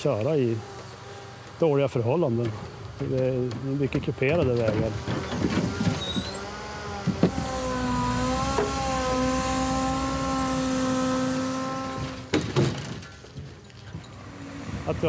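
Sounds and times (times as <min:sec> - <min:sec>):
hydraulic crane whine: 0:04.6 - 0:12.4, 0:13.9 - 0:15.0
sharp knocks: 0:11.9 - 0:13.0.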